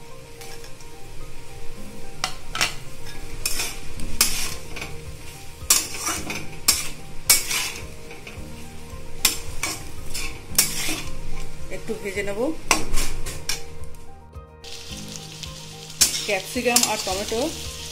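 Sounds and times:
oil sizzling: 0.0s - 17.9s
metal spatula scraping pan: 2.2s - 11.6s, 12.7s - 13.7s, 16.0s - 17.9s.

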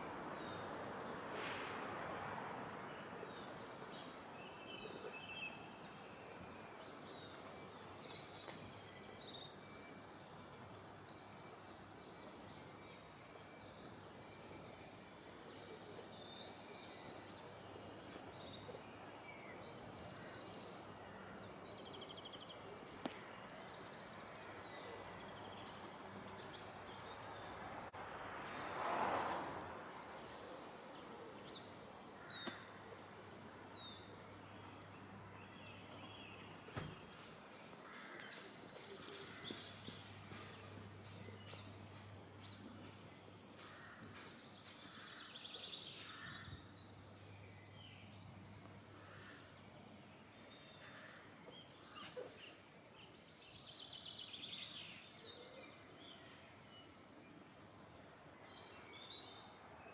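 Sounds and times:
low outdoor background: 0.0s - 59.9s
birds chirping and trilling: 30.1s - 59.9s.

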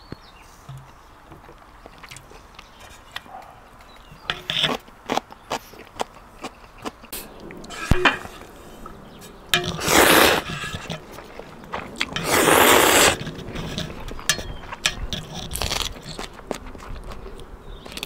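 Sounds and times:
chewing with crunching clicks: 1.4s - 7.7s, 13.1s - 18.0s
person slurping noodles: 9.7s - 10.9s, 12.2s - 13.2s.

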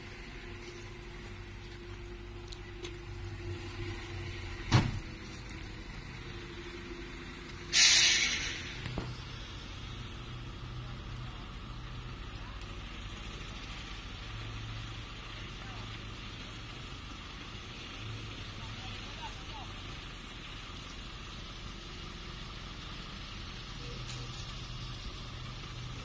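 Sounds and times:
vehicle engines idling: 0.0s - 26.0s
air hissing burst: 7.7s - 9.4s.

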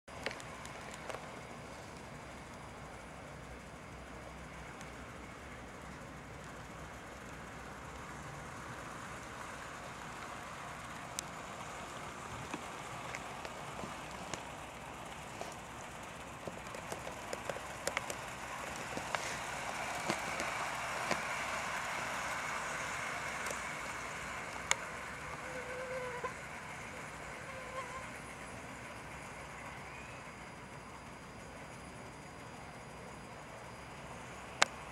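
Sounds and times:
sharp clicks of wheels: 0.1s - 2.7s, 5.8s - 27.3s
model train motor whirring: 6.3s - 31.7s.

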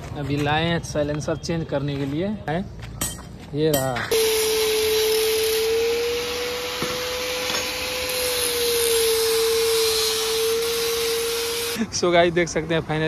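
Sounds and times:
angle grinder grinding metal: 4.1s - 11.8s.

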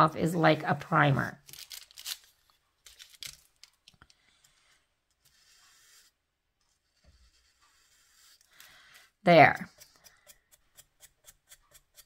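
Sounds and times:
paintbrush strokes: 4.2s - 12.0s.

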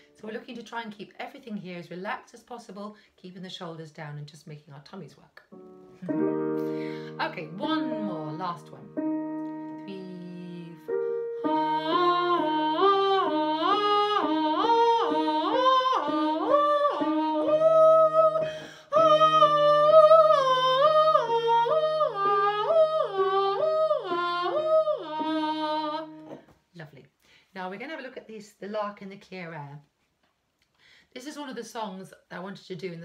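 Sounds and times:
sustained backing chord: 5.6s - 13.5s
woman singing scales: 6.0s - 26.5s.

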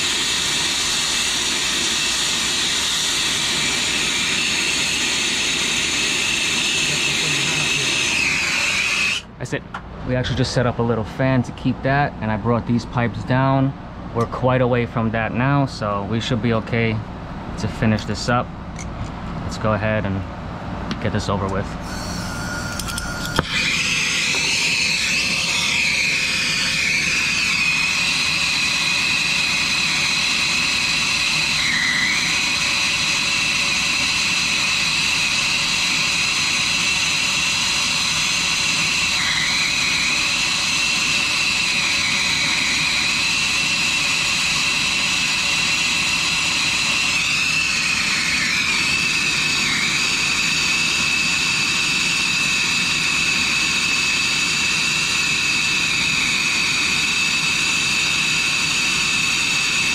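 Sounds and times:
torch flame roaring and whistling: 0.0s - 9.4s, 21.8s - 59.9s.

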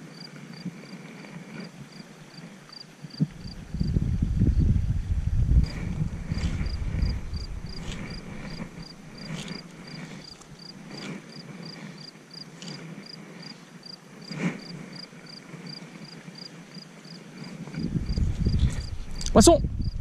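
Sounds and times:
insect chirping: 0.1s - 4.7s, 5.6s - 20.0s
soft clicks of fishing rod: 12.5s - 13.0s.

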